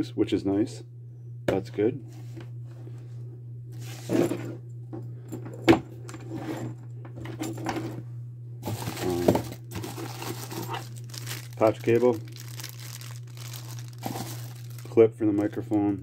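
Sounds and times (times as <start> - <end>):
low hum: 0.0 - 16.0
plastic packaging crinkling: 8.6 - 15.8.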